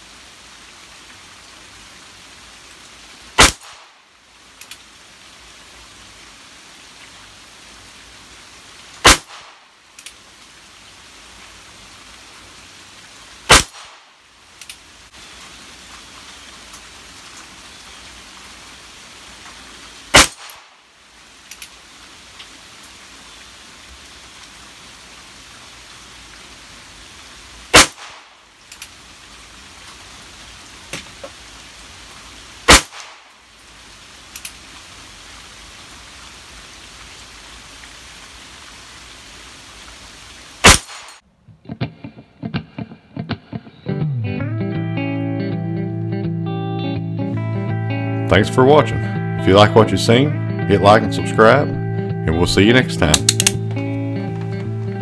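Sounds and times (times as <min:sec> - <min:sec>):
faint clicks: 0:04.6 - 0:04.8, 0:14.6 - 0:14.8, 0:21.5 - 0:21.8, 0:28.7 - 0:28.9.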